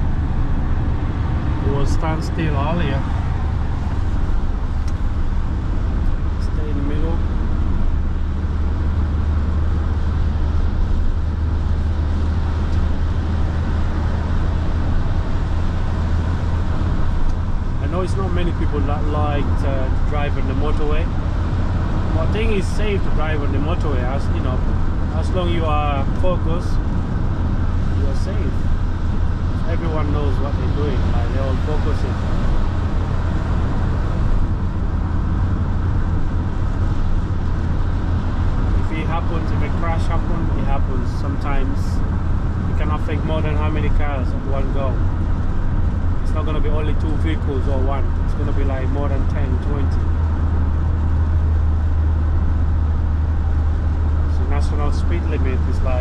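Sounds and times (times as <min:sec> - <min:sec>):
engine and road drone: 0:00.0 - 0:56.0.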